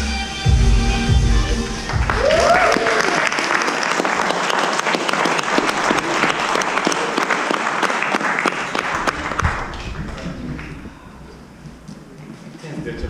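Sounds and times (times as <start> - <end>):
audience applauding: 1.8 - 10.8.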